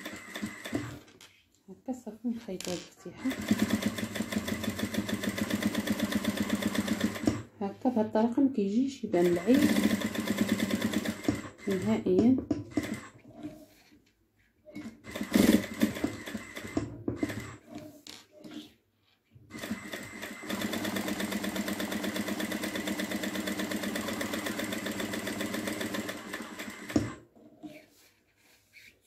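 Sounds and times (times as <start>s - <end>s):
sewing machine stitching: 0.0s - 1.1s, 3.0s - 7.5s, 9.1s - 13.6s, 14.7s - 18.7s, 19.5s - 27.7s.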